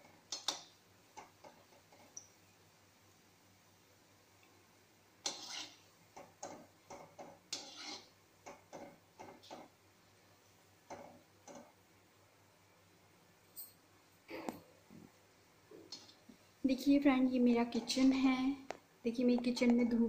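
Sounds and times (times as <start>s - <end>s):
metal skimmer scraping a pan: 5.2s - 5.8s, 7.5s - 8.1s
frying in oil: 5.2s - 9.8s.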